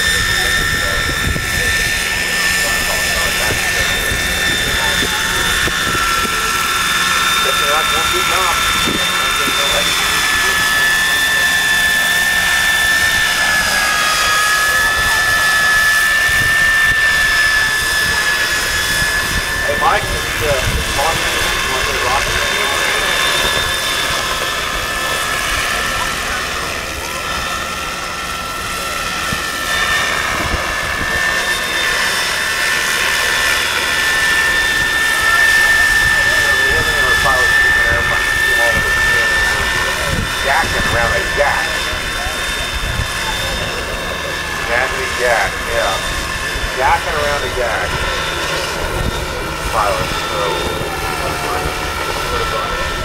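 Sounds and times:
wind rumbling on microphone: 0.0s - 11.1s, 14.6s - 25.7s, 34.5s - 46.8s, 47.8s - 53.0s
model helicopter rotor whine: 0.0s - 53.0s.

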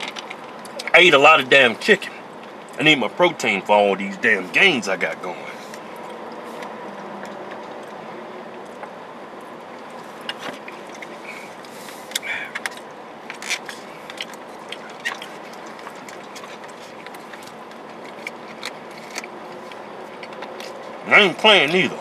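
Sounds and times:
steady background hum: 0.0s - 22.0s
chewing: 5.4s - 21.0s.

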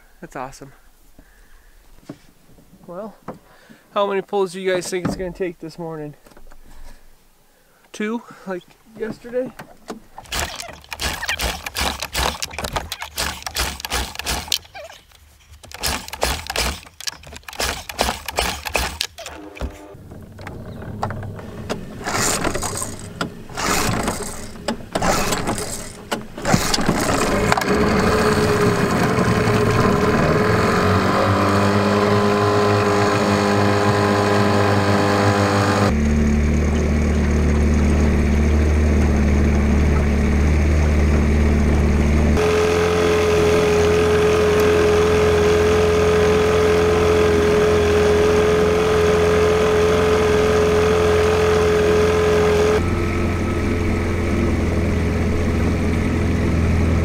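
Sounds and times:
outboard motor starting and running: 9.0s - 57.0s.

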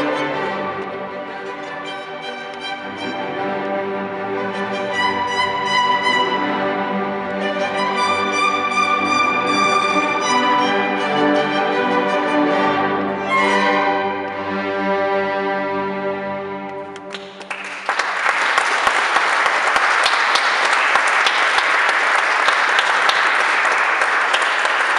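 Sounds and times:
string orchestra chord: 0.0s - 17.1s
audience applause: 17.0s - 24.9s.

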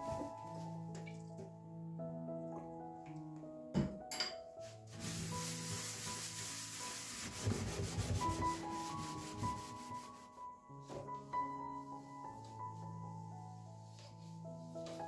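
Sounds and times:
soft background music: 0.0s - 15.0s
sponge scrubbing oven floor: 4.6s - 10.4s.

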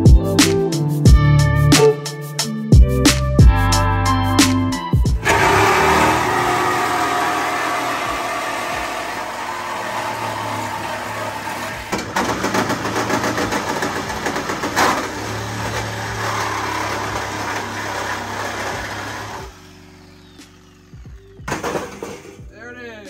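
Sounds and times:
small motor humming: 5.2s - 11.9s, 15.1s - 22.4s.

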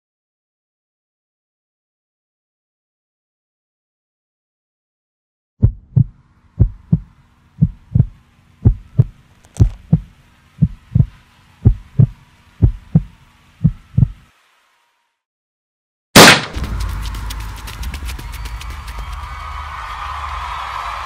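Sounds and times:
heartbeat thumps: 5.6s - 14.2s
faint steady hum: 5.7s - 14.4s.

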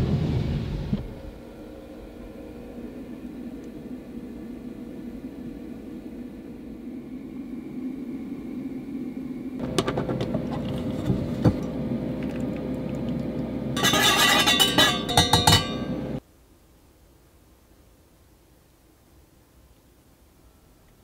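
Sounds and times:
steady hum: 0.0s - 16.3s
ringing metallic clinks: 13.8s - 16.0s.

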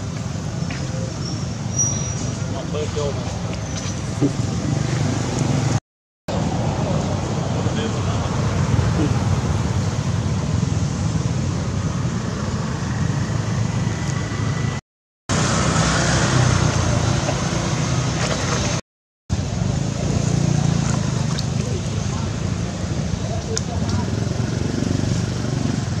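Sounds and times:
outdoor rumble and hiss: 0.0s - 26.0s.

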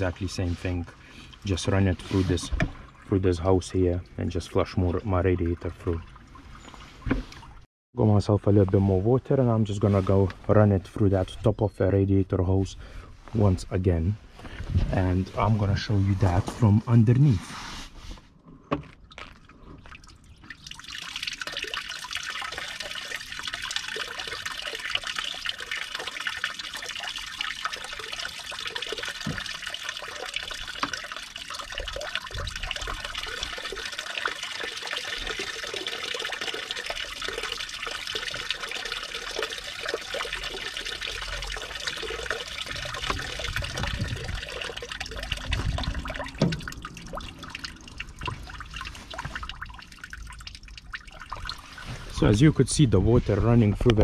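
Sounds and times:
water splashing into container: 18.9s - 54.0s.

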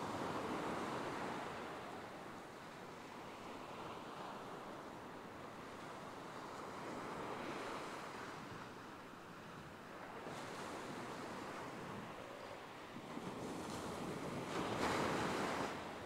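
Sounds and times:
surf washing onto beach: 12.7s - 16.0s.

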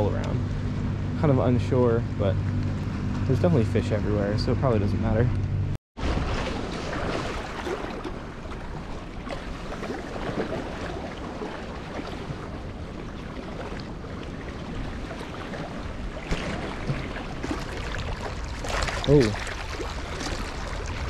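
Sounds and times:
waves splashing against boulders: 6.0s - 21.0s.

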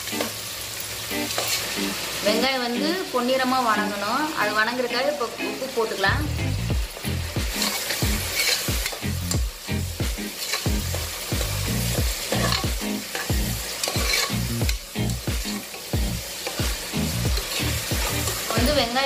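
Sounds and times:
oil sizzling: 0.0s - 19.0s
ladle scraping a pot: 7.6s - 9.0s, 12.3s - 12.6s, 13.2s - 14.4s.

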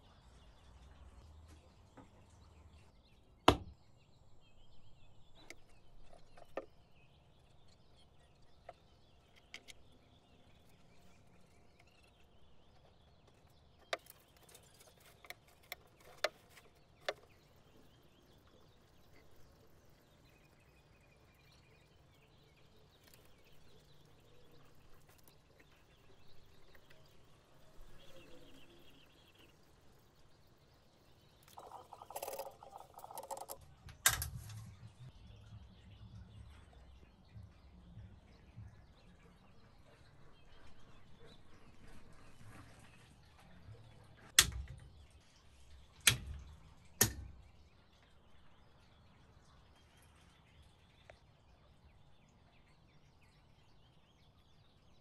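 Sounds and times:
wooden pieces knocking: 31.6s - 34.4s.

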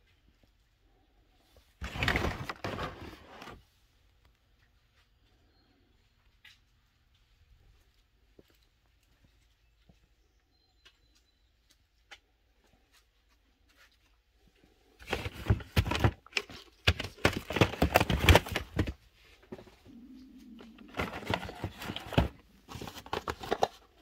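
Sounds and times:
cardboard rustling and scraping: 1.8s - 3.6s, 15.0s - 24.0s.

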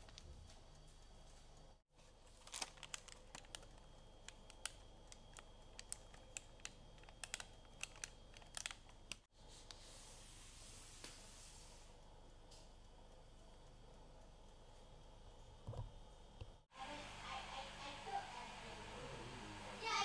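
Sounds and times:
parchment paper crinkling: 2.0s - 9.2s.

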